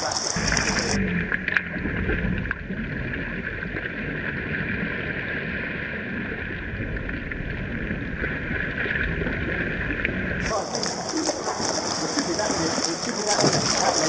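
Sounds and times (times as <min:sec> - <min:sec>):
short sharp splashes: 0:00.0 - 0:01.6, 0:10.4 - 0:14.0
water sloshing around kayak: 0:00.0 - 0:14.0.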